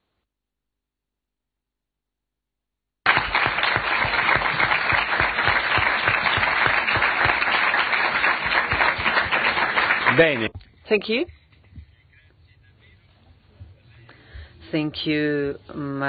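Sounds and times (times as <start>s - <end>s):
audience applauding: 3.1s - 10.5s.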